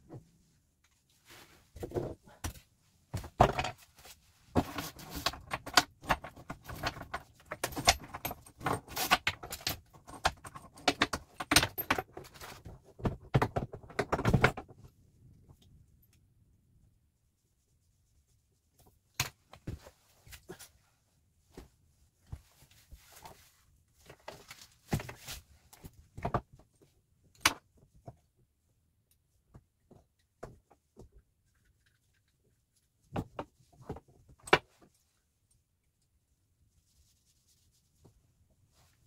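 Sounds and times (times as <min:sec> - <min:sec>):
objects knocking and clicking: 0:01.8 - 0:03.8, 0:04.5 - 0:14.9.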